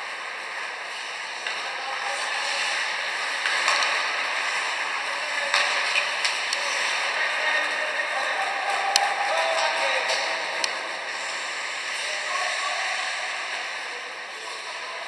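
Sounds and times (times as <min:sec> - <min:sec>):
skates hissing on ice: 0:00.0 - 0:08.0, 0:10.9 - 0:14.8
hockey sticks and puck clacking: 0:00.0 - 0:13.7
arena crowd: 0:05.0 - 0:14.0.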